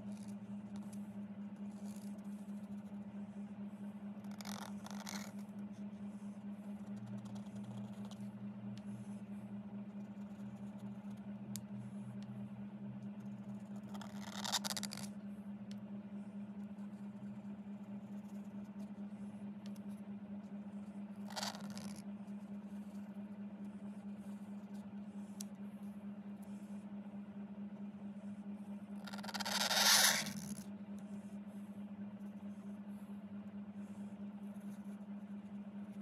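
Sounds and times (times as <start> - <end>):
pen scraping across paper: 0.0 - 3.0, 4.2 - 9.2, 9.9 - 11.2, 13.1 - 15.1, 16.6 - 19.0, 21.1 - 22.0, 29.0 - 30.6, 34.4 - 35.1
steady low hum: 0.0 - 36.0.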